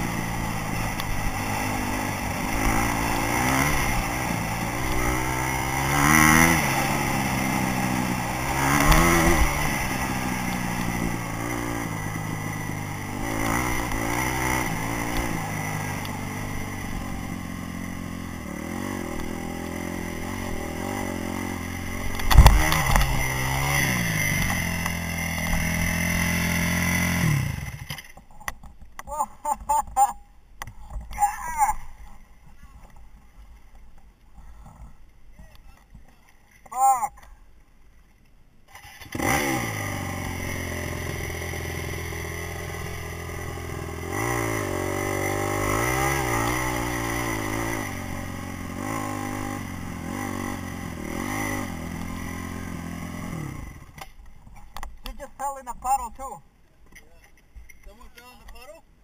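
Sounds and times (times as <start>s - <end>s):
dirt bike engine revving: 0.0s - 28.1s, 38.7s - 54.1s.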